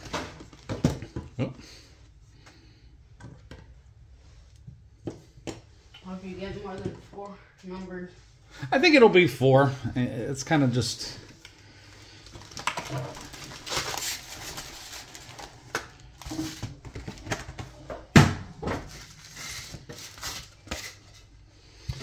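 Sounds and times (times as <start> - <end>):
foil packs crinkling: 11.6 - 17.5, 18.9 - 21.3.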